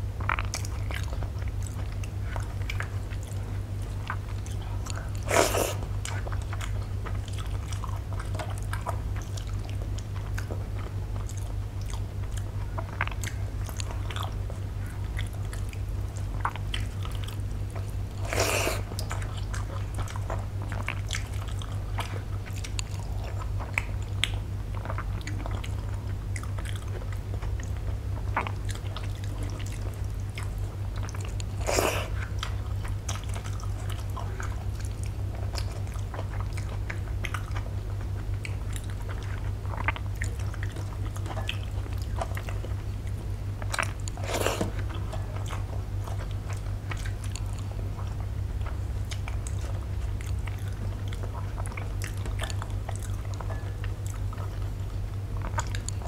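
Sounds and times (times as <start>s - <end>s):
steady low hum: 0.0s - 56.0s
wet chewing and biting: 0.0s - 56.0s
loud mouth sounds: 5.2s - 5.9s, 18.2s - 19.0s, 31.5s - 32.3s.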